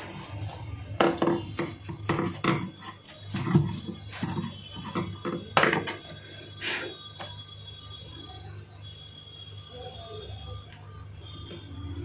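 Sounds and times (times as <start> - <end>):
stiff brush scrubbing plastic: 1.5 - 5.2.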